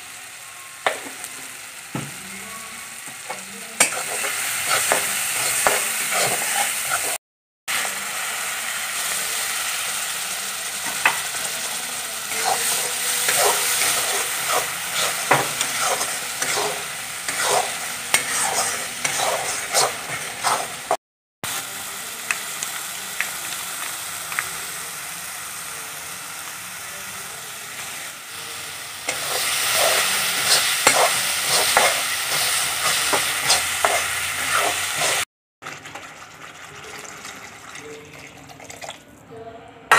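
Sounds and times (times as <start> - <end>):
paste sizzling in oil: 0.0 - 35.3
spatula scraping a wok: 3.3 - 7.2, 12.3 - 21.0, 29.1 - 35.2.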